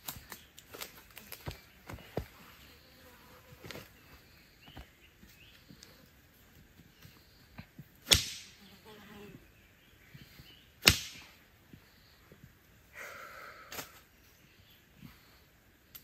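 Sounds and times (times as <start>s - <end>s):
wood sticks cracking: 0.0s - 2.2s, 8.0s - 8.6s, 10.8s - 11.4s.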